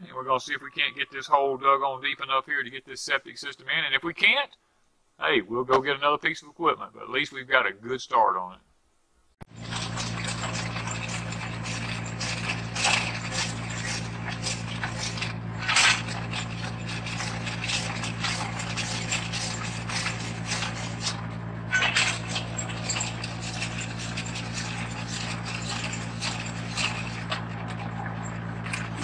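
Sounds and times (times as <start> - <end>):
auger bit scraping dirt: 9.5 - 29.0
tractor engine drone: 9.5 - 29.0.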